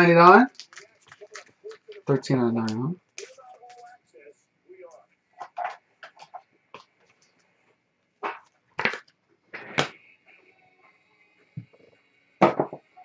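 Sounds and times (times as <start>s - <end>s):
trading cards and foil pack rustling: 0.2s - 7.6s.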